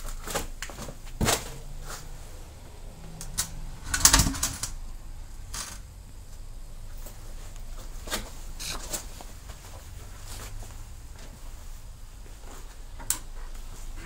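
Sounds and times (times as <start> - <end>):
scattered clicks and light knocks: 13.0 - 14.0.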